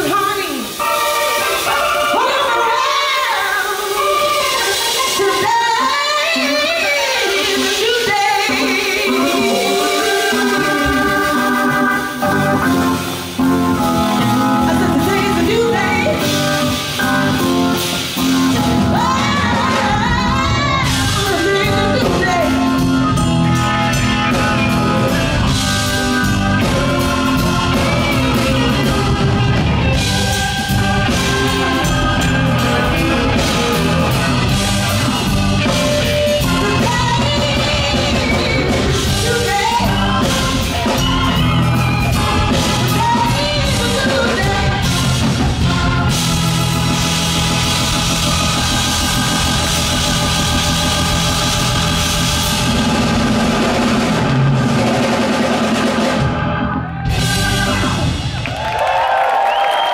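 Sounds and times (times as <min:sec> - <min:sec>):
woman singing: 0:00.0 - 0:12.4, 0:14.3 - 0:16.5, 0:18.6 - 0:22.8, 0:35.6 - 0:46.5
electric guitar: 0:00.0 - 0:59.2
drum kit: 0:00.0 - 0:59.9.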